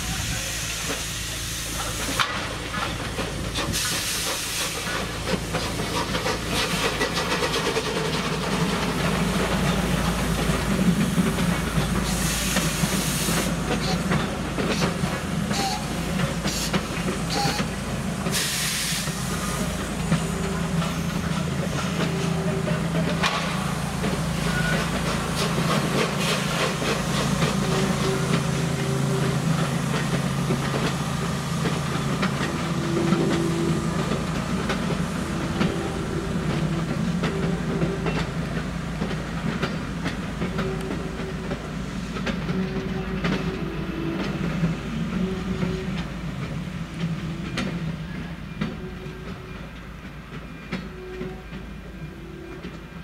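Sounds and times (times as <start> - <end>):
steam hissing: 0.0 - 22.4, 23.4 - 37.8
train wheels clicking on rails: 0.0 - 53.0.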